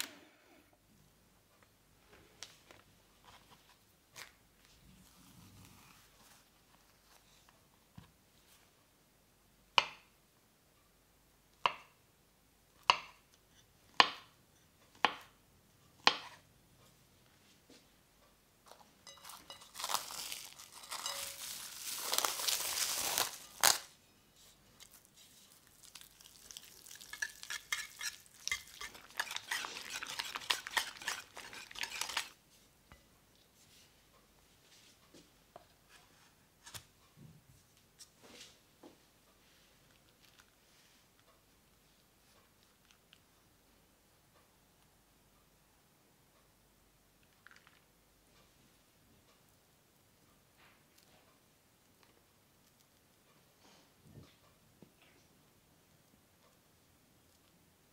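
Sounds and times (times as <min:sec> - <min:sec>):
cling film crinkling: 0:19.2 - 0:23.9, 0:24.8 - 0:32.4.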